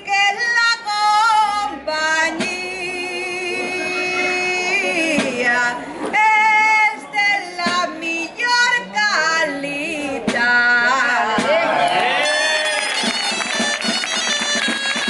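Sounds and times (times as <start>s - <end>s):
woman singing: 0.0s - 11.7s.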